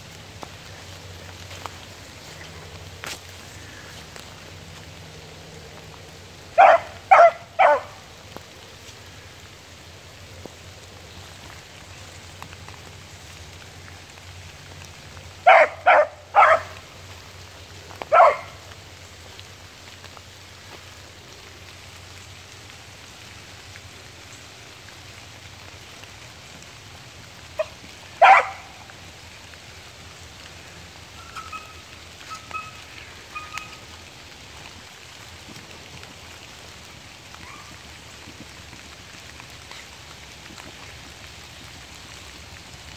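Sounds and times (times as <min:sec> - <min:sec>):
rain pattering on leaves: 0:00.0 - 0:42.9
dog barking: 0:06.6 - 0:08.0, 0:15.4 - 0:16.8, 0:18.1 - 0:18.6, 0:27.6 - 0:28.8.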